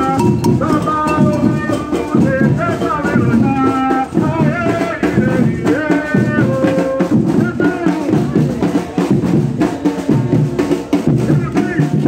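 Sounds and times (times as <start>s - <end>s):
wavering held melody: 0.0s - 2.2s
hand-beaten drums: 0.0s - 12.0s
stick-beaten bass drums: 0.0s - 12.0s.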